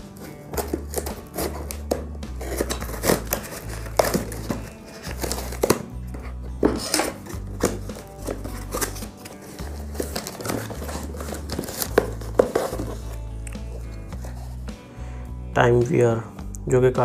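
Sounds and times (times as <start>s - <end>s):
plastic wrap crinkling and tearing: 0.0s - 5.9s
background music with bass line: 0.0s - 17.0s.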